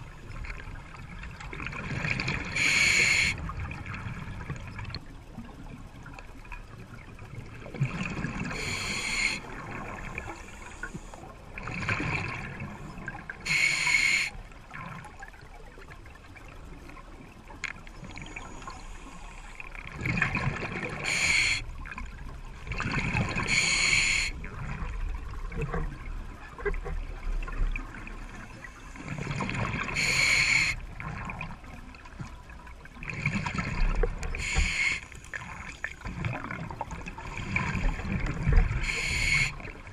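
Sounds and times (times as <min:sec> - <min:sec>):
regulator hissing inhalation: 0:02.6 - 0:03.4, 0:08.6 - 0:09.4, 0:13.5 - 0:14.3, 0:21.1 - 0:21.6, 0:23.5 - 0:24.3, 0:30.0 - 0:30.8, 0:34.4 - 0:35.2, 0:38.8 - 0:39.6
gurgle of exhaled bubbles: 0:07.5 - 0:10.4, 0:19.9 - 0:21.3.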